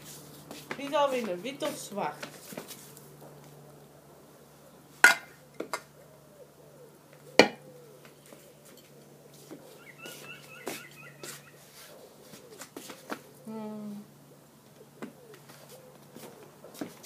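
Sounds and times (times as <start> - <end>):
small bird chirping: 9.7 - 11.7.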